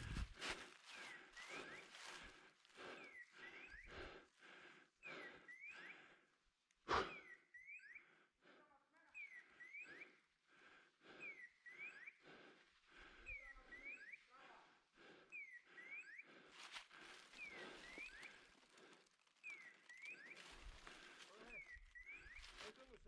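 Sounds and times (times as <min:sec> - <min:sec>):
faint steps through brush: 0:00.0 - 0:04.6, 0:16.3 - 0:23.0.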